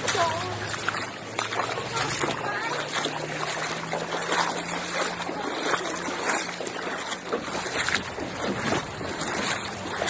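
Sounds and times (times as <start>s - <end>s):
creek babbling over stones: 0.0s - 10.0s.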